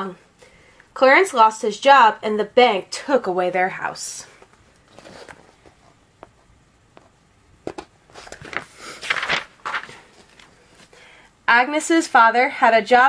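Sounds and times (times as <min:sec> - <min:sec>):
paper page rustling: 0:04.8 - 0:06.4, 0:08.1 - 0:10.9.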